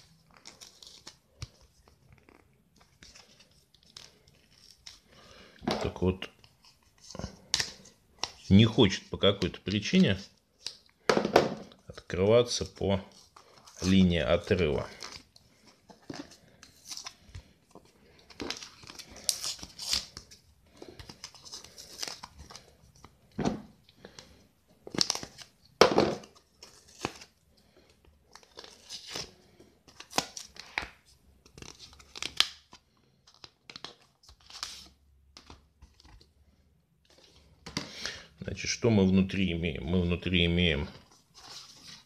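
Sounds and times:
cardboard package tearing: 18.4 - 20.4.

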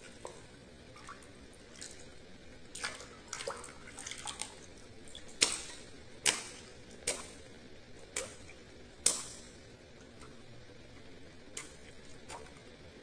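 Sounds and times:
hands slapping water balloon: 5.2 - 7.4, 8.1 - 9.5.

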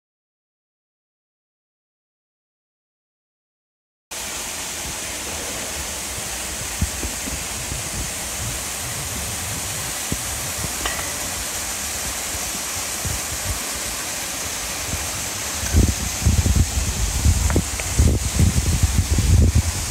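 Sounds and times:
waterfall rushing into pool: 4.1 - 19.9.

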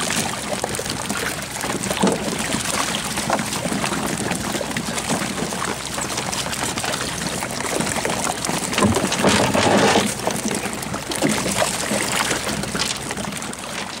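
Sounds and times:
water splashing and churning: 0.0 - 14.0.

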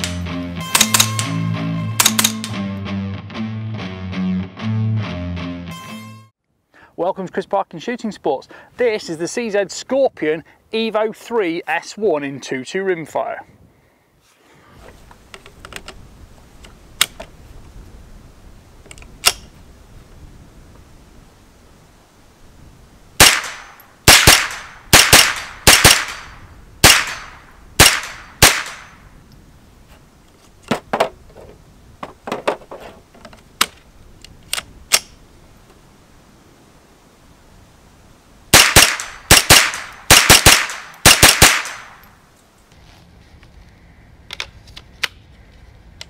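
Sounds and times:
outdoor background noise: 0.0 - 2.8, 6.4 - 46.0
rifle gunshots: 23.2 - 29.0, 38.5 - 42.0.

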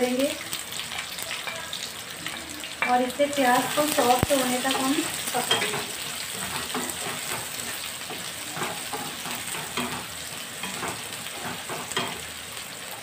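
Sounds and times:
onions sizzling in hot oil: 0.0 - 13.0
spatula knocking on pan: 2.8 - 12.3
wooden spatula scraping a pan: 2.9 - 12.3.

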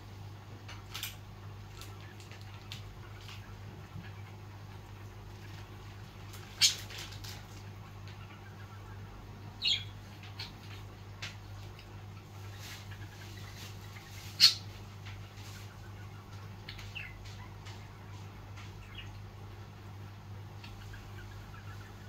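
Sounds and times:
steady low hum: 0.0 - 22.0
budgerigars chirping: 6.4 - 7.0, 7.8 - 10.9, 12.2 - 19.2, 20.6 - 22.0.

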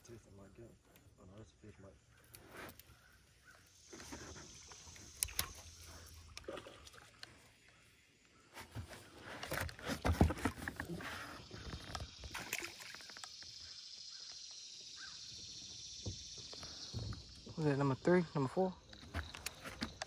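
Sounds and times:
fishing rod handling clicks: 5.1 - 5.6.

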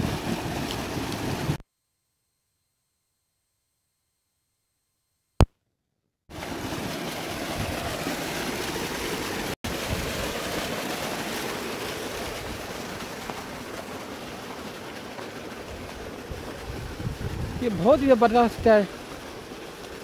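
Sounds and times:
water rushing through channels: 0.0 - 1.6, 6.3 - 20.0.

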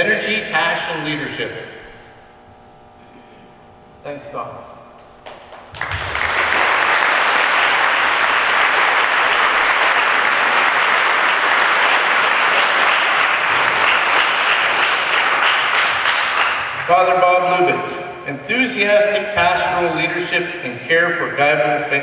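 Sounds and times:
audience applauding: 5.2 - 17.2.

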